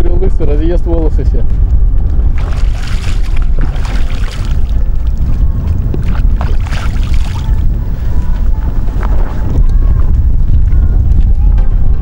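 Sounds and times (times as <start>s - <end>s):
wind rumble on microphone: 0.0s - 12.0s
water splashing on face: 2.3s - 5.4s, 6.0s - 7.6s.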